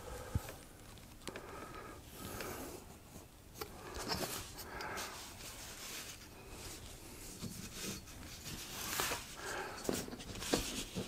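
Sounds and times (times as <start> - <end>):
rubbing and scratching foam: 4.0 - 11.0.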